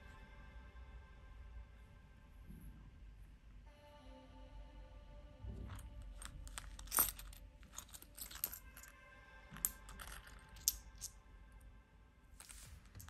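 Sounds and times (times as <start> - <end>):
faint background music: 0.0 - 13.0
coins clinking: 6.1 - 8.9, 9.5 - 11.1, 12.4 - 13.0.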